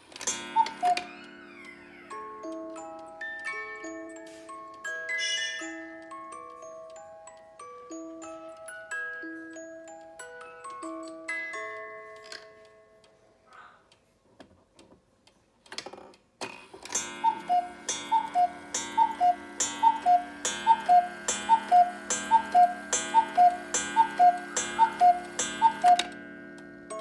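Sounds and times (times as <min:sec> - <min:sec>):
cuckoo clock call: 0:00.0 - 0:14.1, 0:16.8 - 0:27.0
clock ticking: 0:00.1 - 0:04.0, 0:16.9 - 0:27.0
steady hum: 0:17.0 - 0:26.9.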